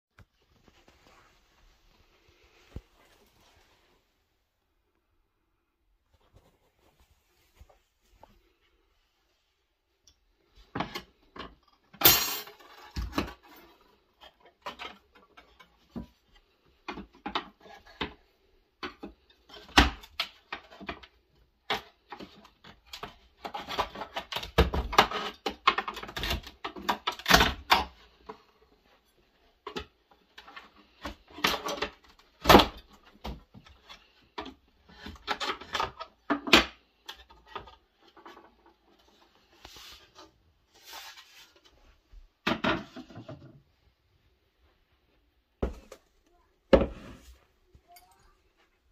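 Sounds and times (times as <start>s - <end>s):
wood and metal scraping: 45.6s - 48.0s.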